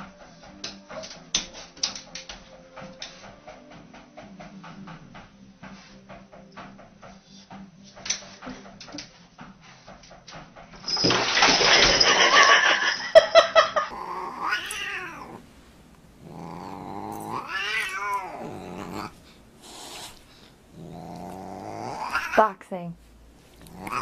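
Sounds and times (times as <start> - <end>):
cat hissing: 13.8 - 22.6, 23.5 - 24.0
cat yowling: 13.9 - 15.4, 16.2 - 20.2, 20.8 - 22.5, 23.6 - 24.0.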